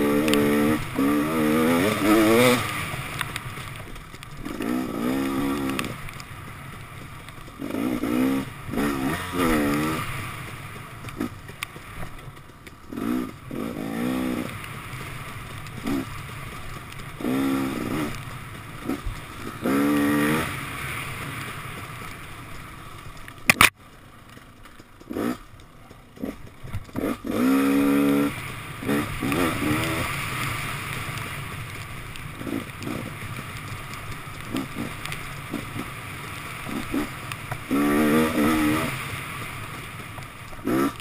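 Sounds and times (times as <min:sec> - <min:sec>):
dirt bike engine revving: 0:00.0 - 0:23.7, 0:25.0 - 0:25.5, 0:26.2 - 0:41.0.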